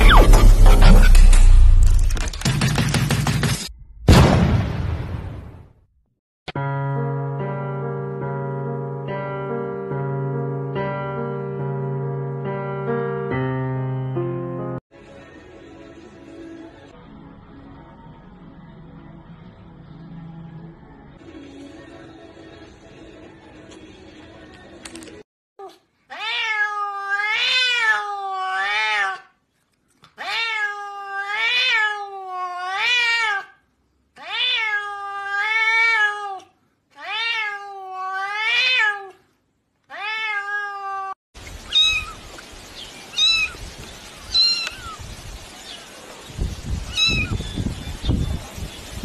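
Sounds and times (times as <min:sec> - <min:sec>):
cat meowing: 0:25.6 - 0:29.3, 0:30.2 - 0:33.6, 0:34.2 - 0:39.2, 0:39.9 - 0:42.2, 0:43.1 - 0:43.6, 0:44.3 - 0:45.0, 0:46.9 - 0:47.5.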